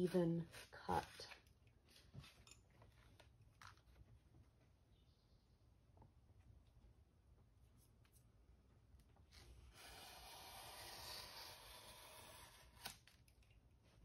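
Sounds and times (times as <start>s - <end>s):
blade slicing paper: 9.3s - 13.4s.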